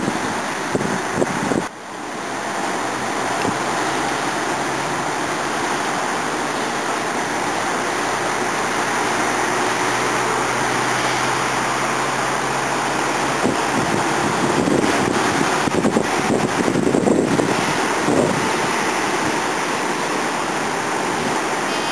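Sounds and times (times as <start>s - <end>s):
distant road traffic: 0.0s - 21.9s.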